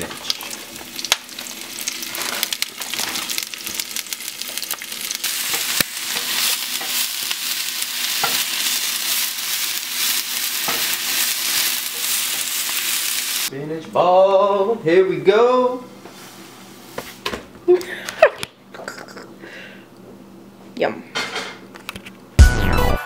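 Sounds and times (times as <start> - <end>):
spinach sizzling in frying pan: 0.0 - 13.5.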